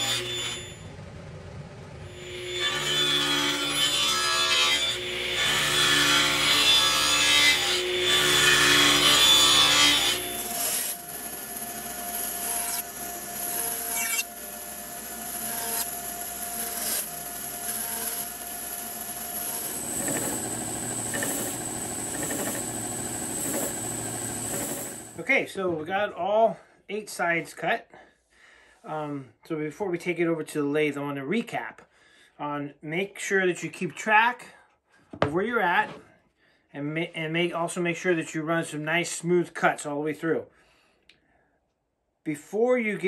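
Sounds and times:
table saw cutting wood: 0.0s - 1.0s, 2.0s - 25.2s
band saw running: 0.0s - 25.2s
drum sander running: 16.3s - 25.2s.

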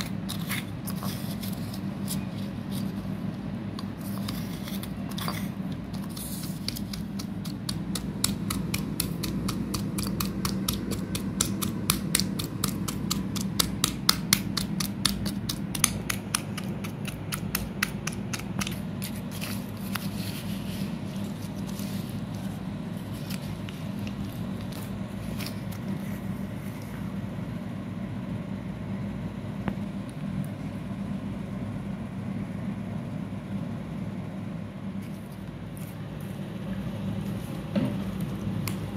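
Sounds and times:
spoon scraping in stone mortar: 0.0s - 3.0s, 3.8s - 7.6s.

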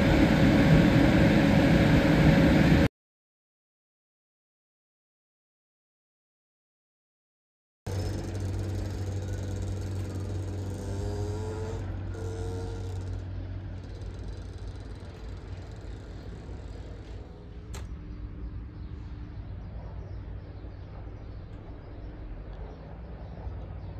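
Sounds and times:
locomotive humming: 0.0s - 2.9s, 7.9s - 23.9s.

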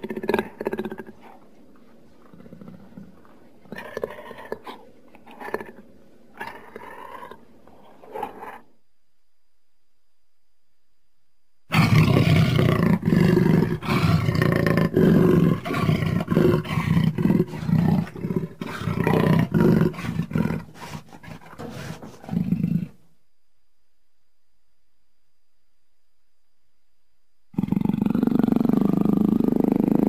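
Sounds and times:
jaguar roaring: 0.0s - 1.5s, 2.2s - 8.7s, 11.7s - 23.0s, 27.6s - 30.0s.

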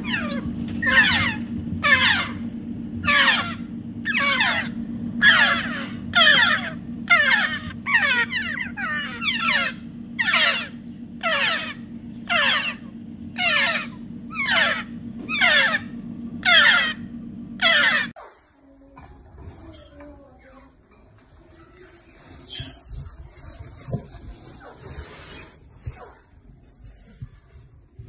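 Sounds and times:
parrots calling: 0.0s - 18.2s
steady low hum: 0.0s - 28.0s.

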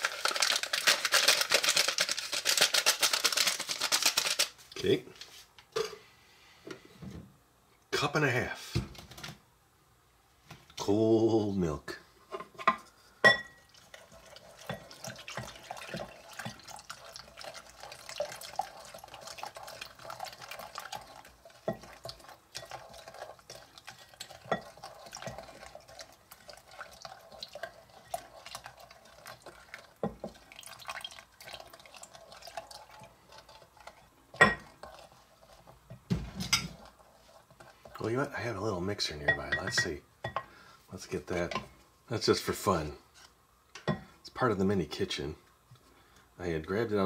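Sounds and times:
milk pouring into a glass bowl: 13.5s - 35.6s.

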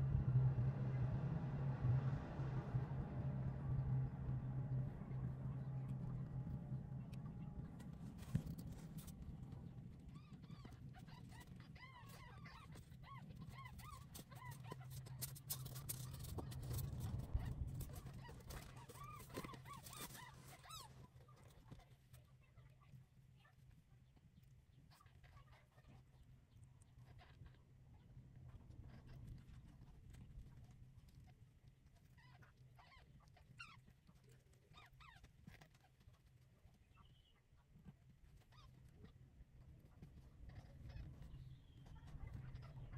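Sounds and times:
low hum: 0.0s - 20.3s.

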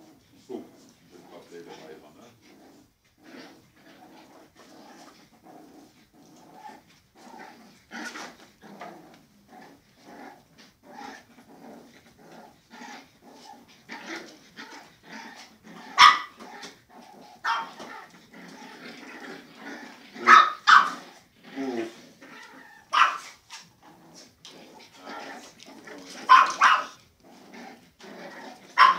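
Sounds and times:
puppies play growling: 0.0s - 28.9s
puppies yapping: 20.2s - 21.0s, 22.4s - 23.6s, 25.4s - 27.0s.

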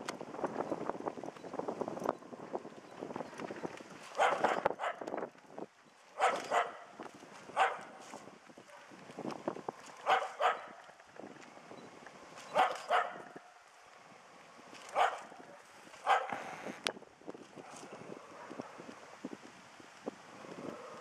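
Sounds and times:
small dog barking: 4.2s - 5.0s, 6.2s - 6.9s, 7.6s - 7.9s, 10.0s - 10.8s, 12.5s - 13.3s, 14.9s - 16.4s.

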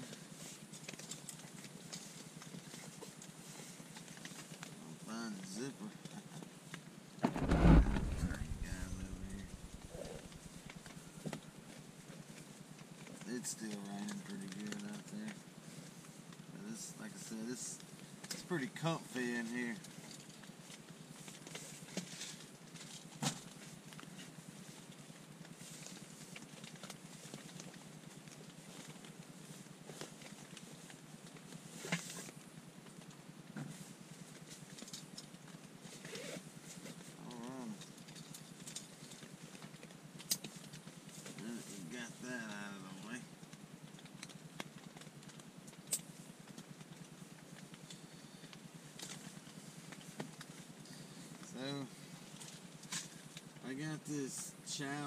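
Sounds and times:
rain on a tent: 0.0s - 11.1s, 12.2s - 47.8s
rummaging through a backpack: 35.8s - 37.1s.

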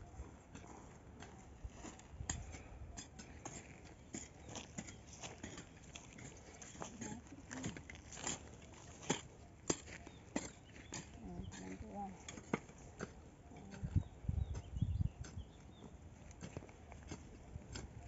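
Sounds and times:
footsteps crunching on stony soil: 3.3s - 12.7s.

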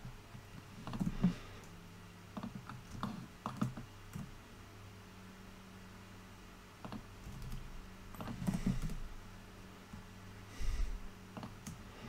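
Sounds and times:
faint low hum: 0.0s - 12.0s
keyboard keys clicking: 0.8s - 1.3s, 2.4s - 4.3s, 6.8s - 9.0s.

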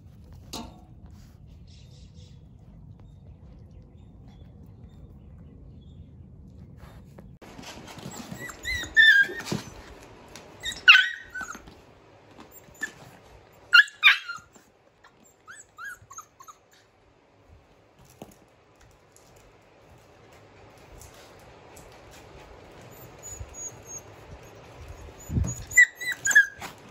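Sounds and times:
puppies whining softly: 1.0s - 17.0s, 22.2s - 26.9s
puppies yelping and whimpering: 7.8s - 11.8s, 12.4s - 16.8s, 22.8s - 26.9s.

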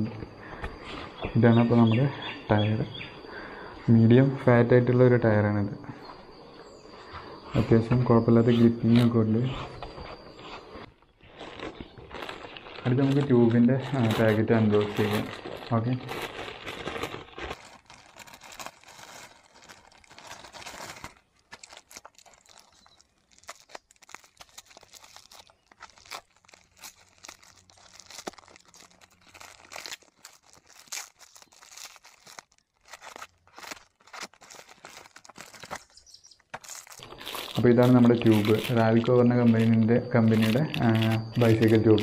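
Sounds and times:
packaging crinkling and tearing: 8.5s - 42.0s.

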